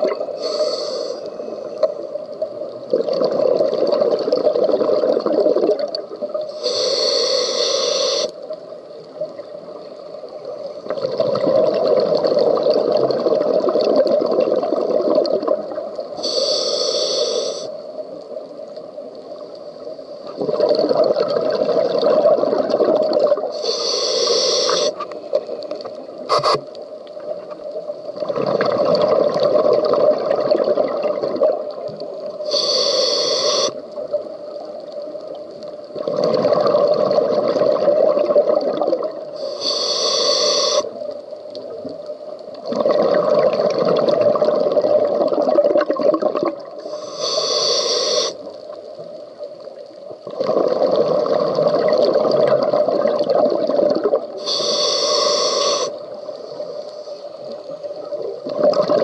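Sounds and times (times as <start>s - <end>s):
regulator inhale hiss: 0.2s - 2.2s, 6.4s - 8.6s, 16.1s - 18.0s, 23.5s - 25.3s, 26.3s - 26.9s, 32.3s - 34.0s, 39.3s - 41.2s, 46.8s - 48.7s, 54.3s - 58.0s
exhaled bubbles rushing: 2.9s - 6.4s, 10.9s - 16.0s, 20.3s - 23.5s, 28.2s - 31.9s, 35.9s - 39.3s, 42.6s - 46.8s, 50.2s - 54.4s, 58.1s - 59.0s.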